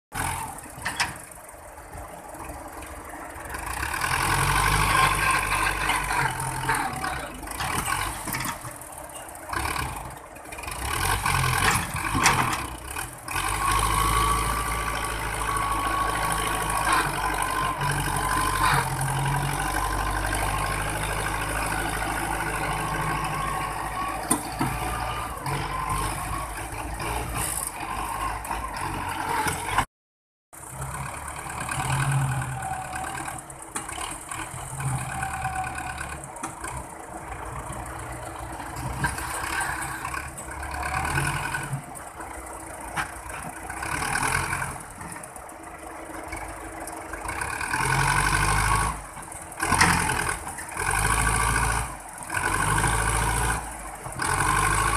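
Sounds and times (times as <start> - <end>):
tractor diesel engine straining: 0.1 - 29.9, 30.6 - 54.9.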